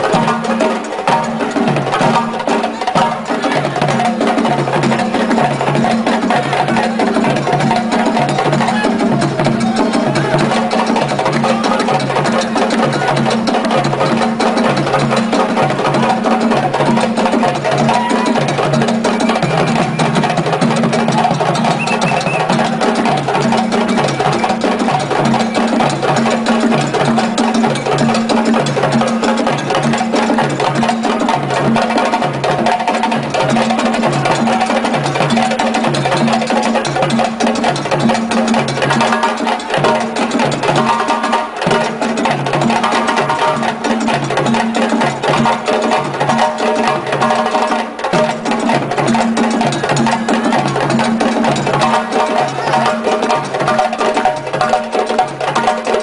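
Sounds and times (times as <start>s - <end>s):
hand drum ensemble: 0.0s - 56.0s.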